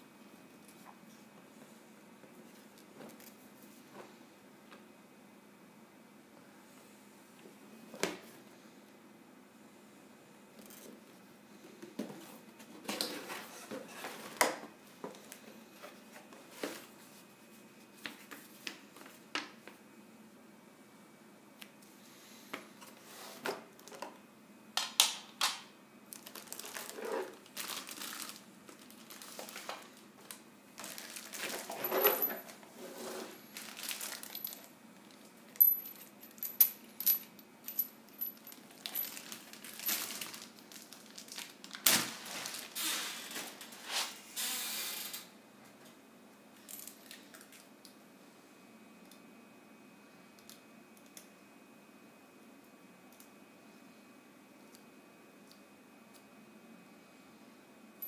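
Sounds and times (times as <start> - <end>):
plastic wrapping crinkling: 26.1 - 31.8, 33.5 - 35.3, 38.6 - 43.7
cardboard and paper rustling: 26.2 - 32.0, 32.8 - 34.6, 38.8 - 44.1.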